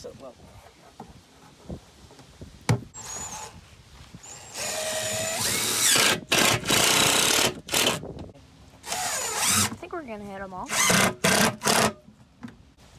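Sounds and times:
cordless drill driving screws: 3.0s - 3.6s, 4.2s - 8.0s, 8.8s - 9.8s, 10.7s - 12.0s.

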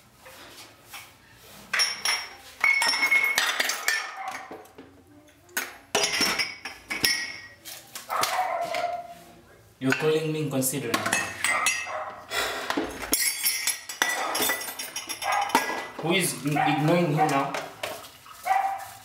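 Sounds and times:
dishes and cutlery clattering: 1.7s - 4.9s, 5.6s - 9.0s, 9.8s - 12.0s, 12.7s - 18.7s.

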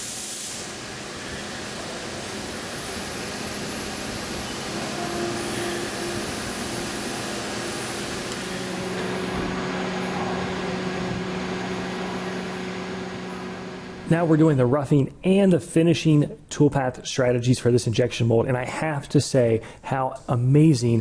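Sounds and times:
coolant spray hissing: 0.0s - 14.1s
steady low hum: 0.6s - 14.8s
machine spindle whirring: 0.7s - 14.4s.

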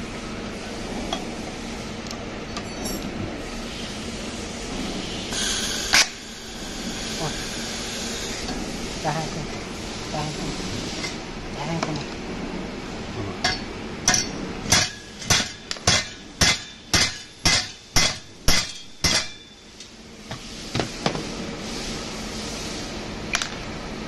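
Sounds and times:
metal-on-metal strikes ringing: 13.4s - 19.6s.

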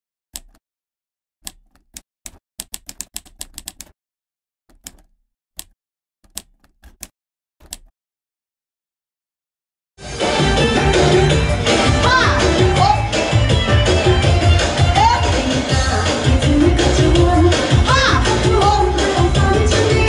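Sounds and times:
typewriter key clicks: 0.4s - 0.6s, 4.7s - 7.9s.

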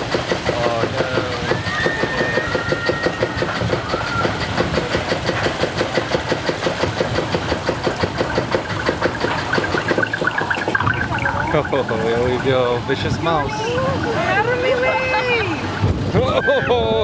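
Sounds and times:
chain lift ratchet clacking: 0.0s - 12.3s.

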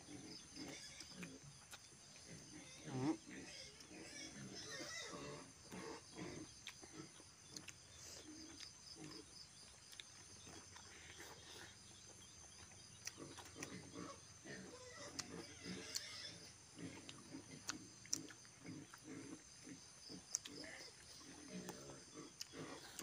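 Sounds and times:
chewing and lip-smacking: 6.6s - 16.2s, 16.9s - 19.5s, 20.1s - 23.0s.

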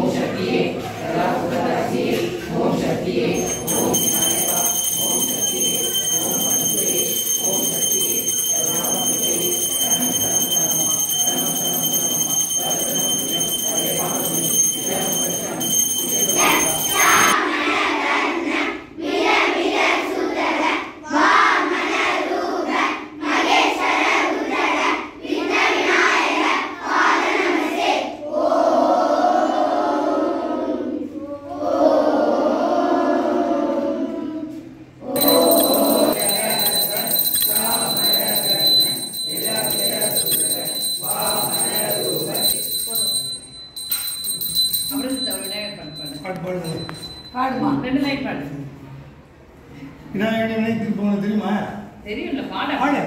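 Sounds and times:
group chanting a prayer: 0.0s - 42.7s
hand bell ringing: 3.4s - 17.4s, 35.2s - 48.0s.

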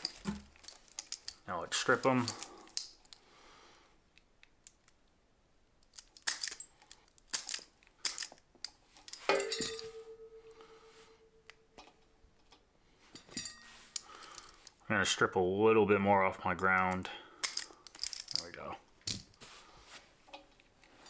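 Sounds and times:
metallic clack: 9.1s - 10.8s
ringing tone: 9.3s - 11.8s.

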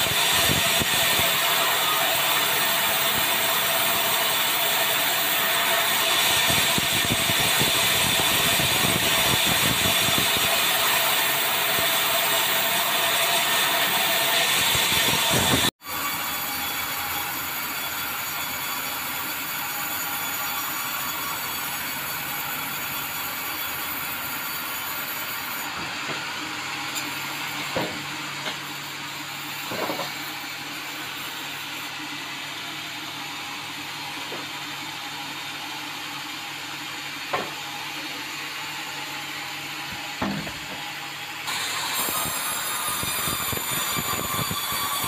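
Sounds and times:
bandsaw sawing timber: 0.0s - 25.7s, 41.4s - 45.0s.

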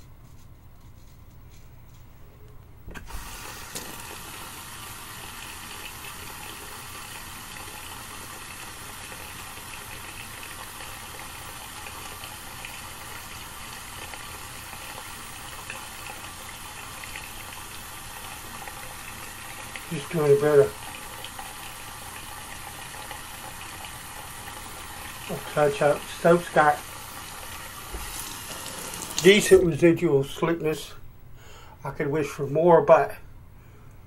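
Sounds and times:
water running from tap: 3.1s - 29.8s.

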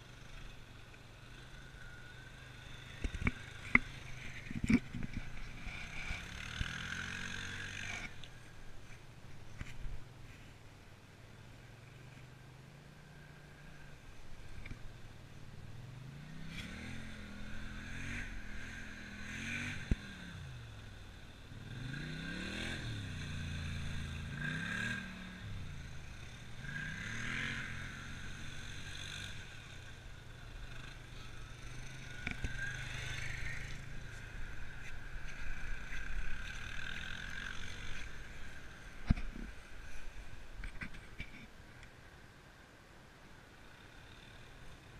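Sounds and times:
quad bike engine revving: 0.0s - 8.3s, 15.9s - 39.4s.

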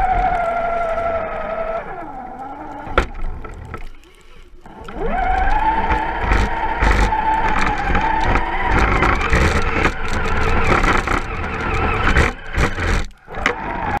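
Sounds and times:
electric motor whining: 4.7s - 14.0s
chassis knocking and scraping: 4.9s - 13.8s.

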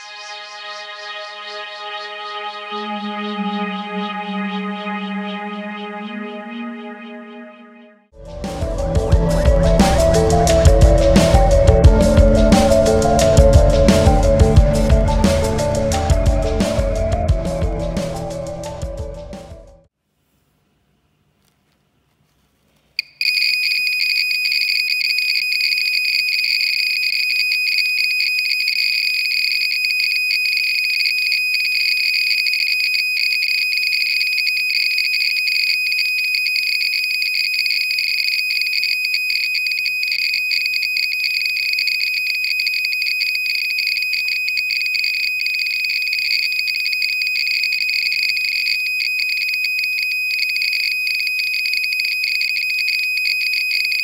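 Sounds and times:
geiger counter alarm beep: 23.0s - 54.0s
geiger counter clicks: 23.0s - 54.0s.

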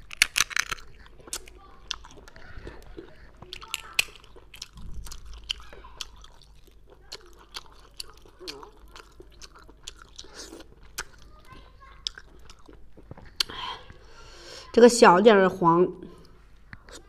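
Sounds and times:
snail shells clicking apart: 0.0s - 2.2s, 3.5s - 5.6s
wet chewing and smacking: 0.0s - 14.1s.

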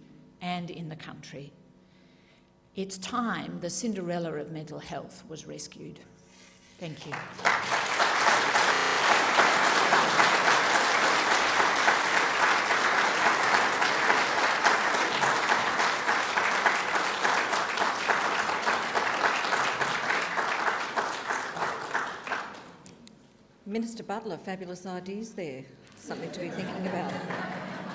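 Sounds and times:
audience applauding: 7.0s - 22.8s, 26.7s - 27.9s.

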